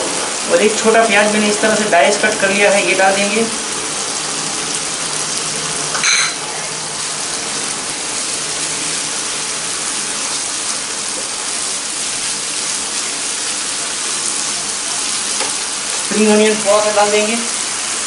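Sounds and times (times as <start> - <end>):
onion and masala sizzling in a pan: 0.0 - 18.0
sharp clink: 6.0 - 6.4.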